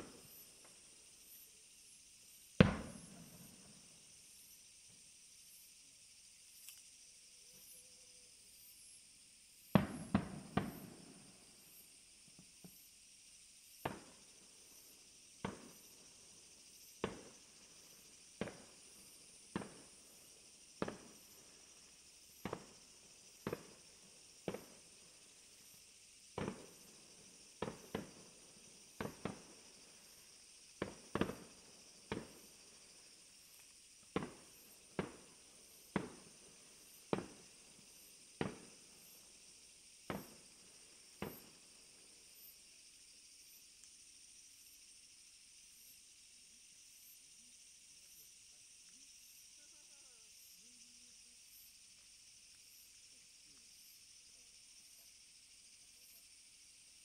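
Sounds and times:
faint high hiss: 0.0 - 57.0
fireworks bangs: 2.6 - 3.6, 9.7 - 11.2, 13.8 - 14.2, 15.4 - 15.9, 17.0 - 17.3, 18.4 - 18.8, 19.5 - 20.0, 20.8 - 21.4, 22.4 - 23.8, 24.4 - 24.8, 26.4 - 26.9, 27.6 - 28.2, 28.9 - 30.2, 30.8 - 32.5, 34.1 - 36.3, 37.1 - 37.4, 38.4 - 39.1, 40.1 - 40.4, 41.2 - 41.5.

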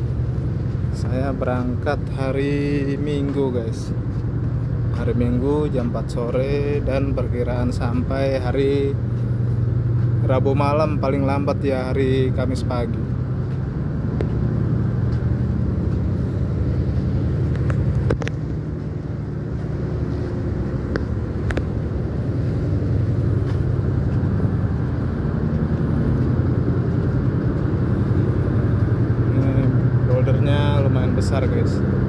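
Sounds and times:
ship diesel engine droning: 0.0 - 32.0.

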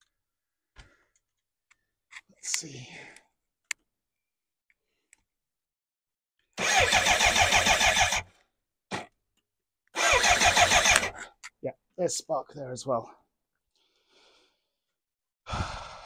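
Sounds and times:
starter motor cranking engine: 6.6 - 8.3, 10.0 - 11.2.

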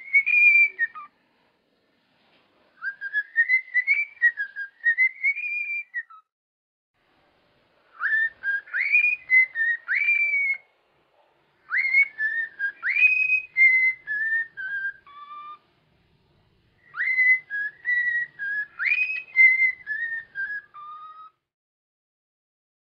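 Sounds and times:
cockatiel whistling: 0.0 - 1.1, 2.8 - 6.3, 7.9 - 10.7, 11.6 - 15.6, 16.8 - 21.4.

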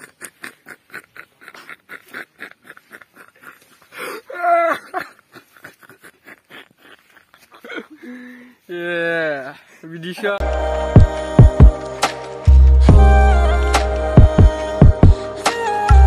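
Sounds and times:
man laughing breathily: 0.0 - 8.7.

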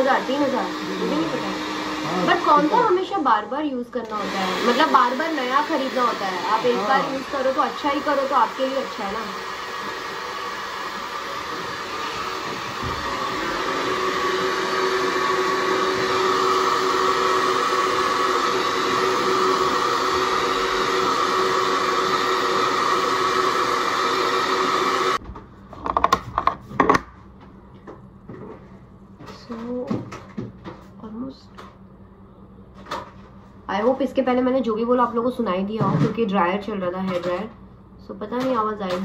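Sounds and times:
hair dryer running: 0.0 - 25.2.

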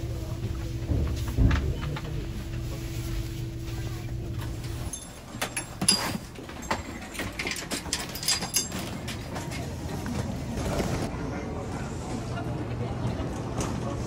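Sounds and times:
steady low hum: 0.0 - 7.5
passengers and luggage knocking: 0.5 - 2.3.

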